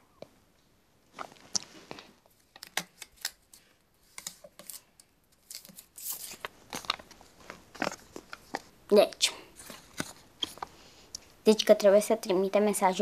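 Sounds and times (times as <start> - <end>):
paper crackling and rustling: 1.1 - 8.7, 9.6 - 10.7.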